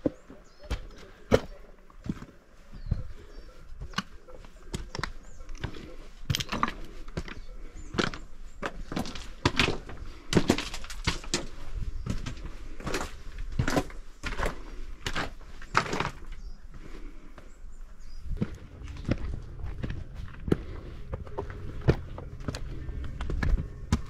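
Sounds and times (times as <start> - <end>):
footsteps on rocky gravel trail: 0.0 - 24.0.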